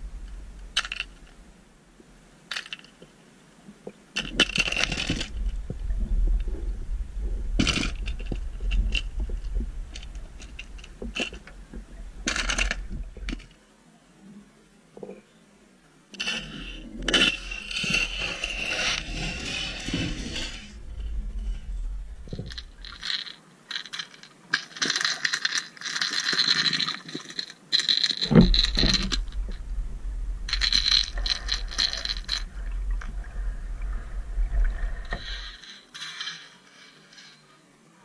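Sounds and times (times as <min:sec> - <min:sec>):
low underwater rumble: 0:00.0 - 0:02.3, 0:04.9 - 0:13.5, 0:16.7 - 0:23.0, 0:28.3 - 0:35.6
underwater crackling clicks: 0:30.4 - 0:36.4.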